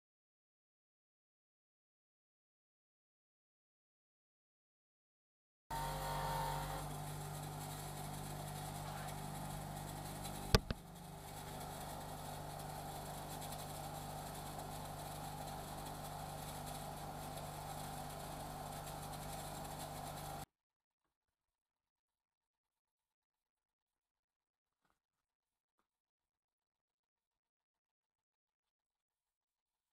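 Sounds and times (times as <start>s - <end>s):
bench grinder motor humming: 5.7s - 20.4s
sharp knock: 10.5s - 10.8s.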